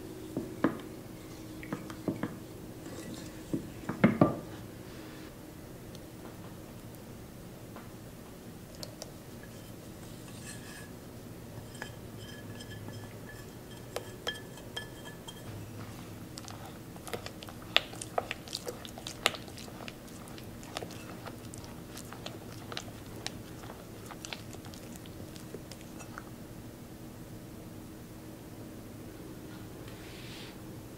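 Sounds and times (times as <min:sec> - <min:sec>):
spatula stirring batter in bowl: 0:01.2 - 0:04.0, 0:08.8 - 0:11.0, 0:11.6 - 0:26.3.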